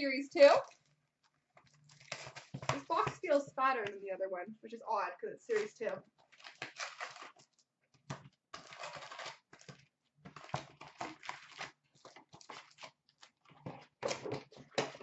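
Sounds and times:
cardboard strip tearing: 0:06.4 - 0:07.5, 0:08.5 - 0:09.8.

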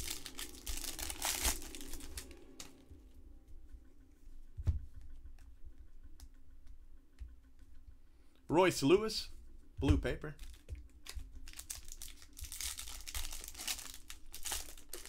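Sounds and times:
plastic wrapper tearing and crinkling: 0:00.0 - 0:02.8, 0:10.4 - 0:15.0.

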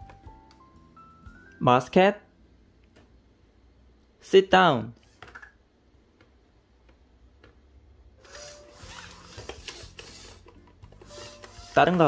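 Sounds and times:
robot servos whirring: 0:08.2 - 0:12.0.

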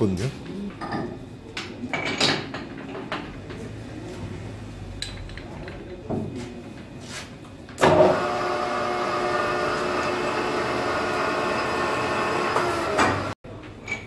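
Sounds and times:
metal lathe whining: 0:07.8 - 0:13.3.

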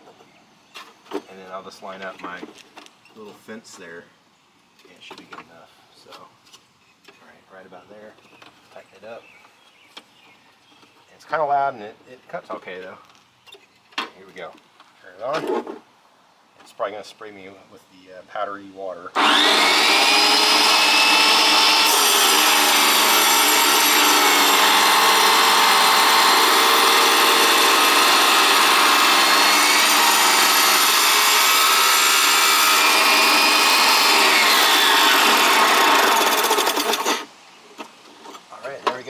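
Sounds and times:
wet tile saw cutting tile: 0:19.2 - 0:37.3.

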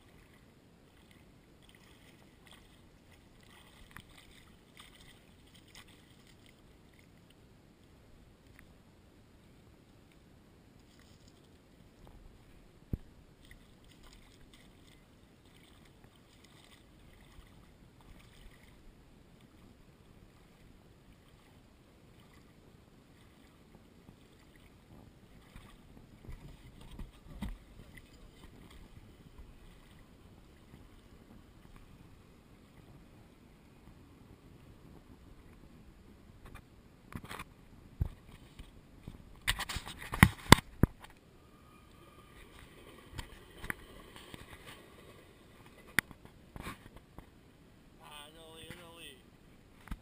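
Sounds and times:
water lapping on gravel shore: 0:00.0 - 0:07.3, 0:13.4 - 0:19.6
low steady rush: 0:00.0 - 0:50.0.

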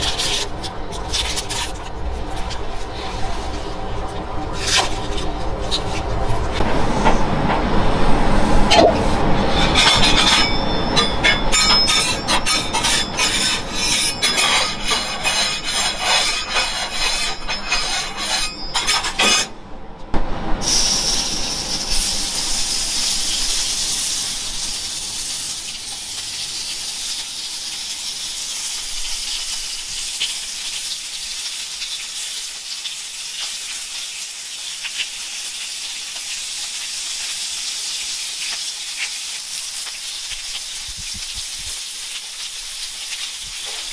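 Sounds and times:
pork slices sizzling on griddle: 0:00.0 - 0:01.8, 0:09.5 - 0:19.5, 0:20.6 - 0:43.9
oil popping and crackling: 0:22.7 - 0:43.9.

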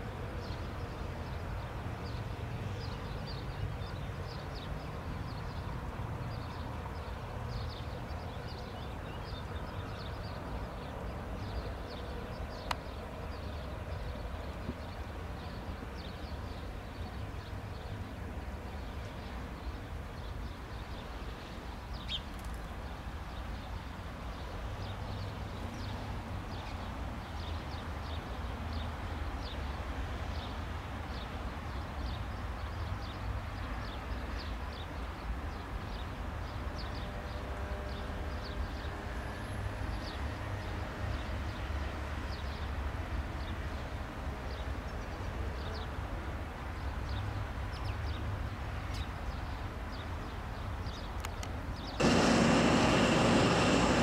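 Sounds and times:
small birds chirping: 0:50.9 - 0:54.0
jet engines idling: 0:52.0 - 0:54.0.

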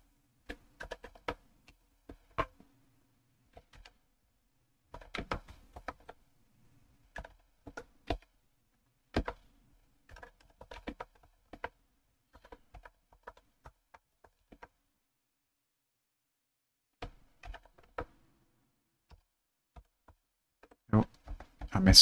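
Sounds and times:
computer keyboard typing: 0:00.5 - 0:01.4, 0:03.5 - 0:04.0, 0:04.9 - 0:06.2, 0:07.1 - 0:08.3, 0:09.2 - 0:09.5, 0:10.1 - 0:14.8, 0:17.0 - 0:18.2, 0:19.1 - 0:21.7.

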